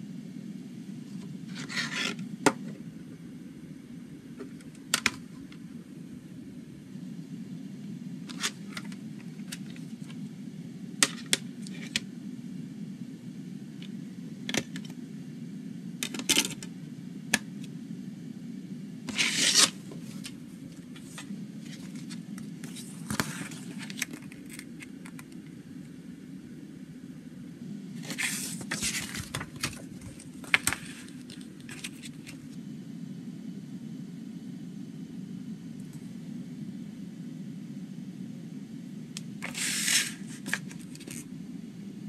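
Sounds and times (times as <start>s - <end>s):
steady low hum: 0.0s - 42.0s
paper booklet scraping: 1.5s - 2.2s, 19.1s - 25.3s, 28.0s - 32.4s, 39.4s - 41.2s.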